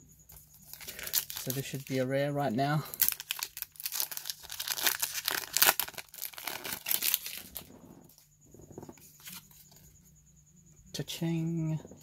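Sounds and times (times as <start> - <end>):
foil wrapper crinkling: 0.6 - 2.1, 2.8 - 7.7.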